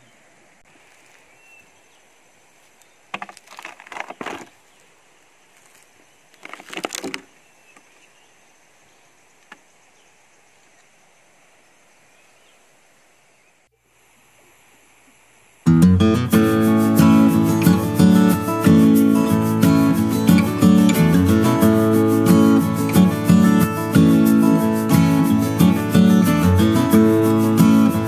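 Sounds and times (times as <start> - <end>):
faint outdoor hiss: 0.0 - 28.0
crackling rustle: 0.6 - 8.2.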